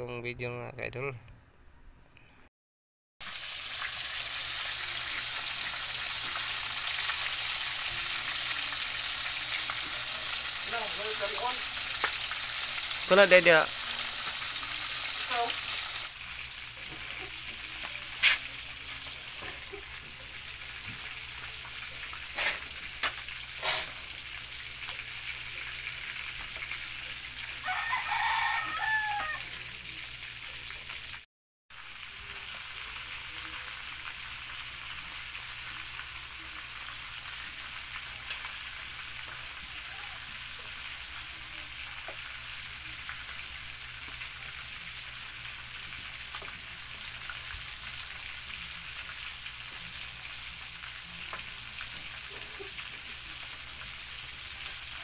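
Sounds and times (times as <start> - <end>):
food sizzling in hot oil: 3.2 - 55.0
rooster crowing: 27.6 - 29.6.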